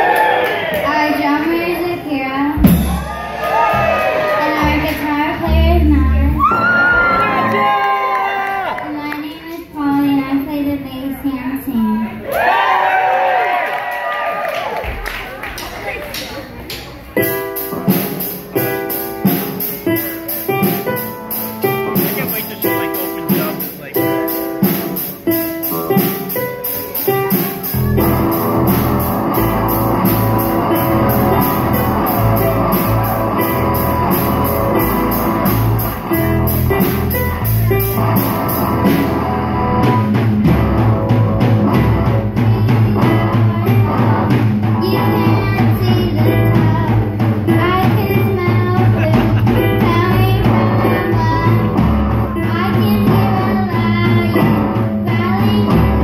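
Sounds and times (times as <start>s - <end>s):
bass guitar: 0.0s - 8.8s, 16.8s - 56.0s
drum kit: 2.5s - 8.4s, 16.7s - 56.0s
electric guitars: 3.6s - 8.8s, 16.6s - 56.0s
girl singing: 4.4s - 6.4s, 41.8s - 56.0s
keyboard: 15.6s - 56.0s.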